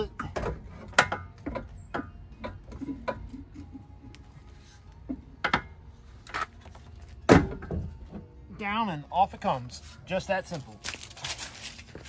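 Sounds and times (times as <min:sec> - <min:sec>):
clicks and knocks of metal rail: 0:00.2 - 0:03.4.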